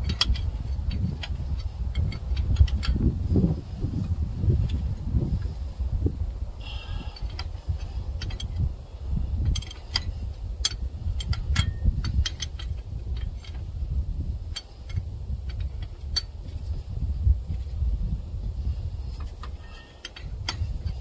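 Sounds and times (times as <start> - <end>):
metallic clicks of wrench: 0.0 - 3.1, 7.1 - 8.7, 9.4 - 13.7, 14.4 - 16.8, 19.1 - 21.0
low rumble: 0.0 - 21.0.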